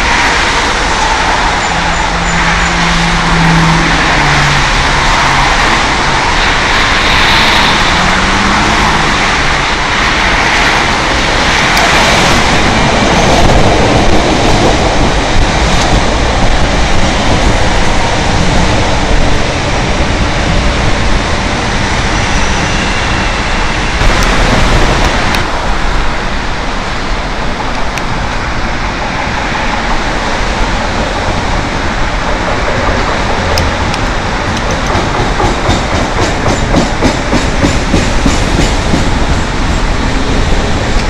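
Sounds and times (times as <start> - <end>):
electric train running past: 0.0 - 41.0
train rolling into station: 0.0 - 41.0
wheels clicking over rail joints: 27.5 - 41.0.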